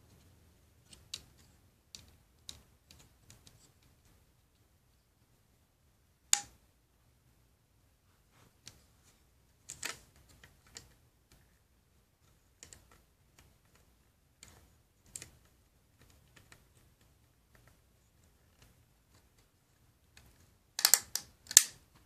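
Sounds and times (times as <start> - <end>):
plastic bricks clicking: 20.1 - 21.8.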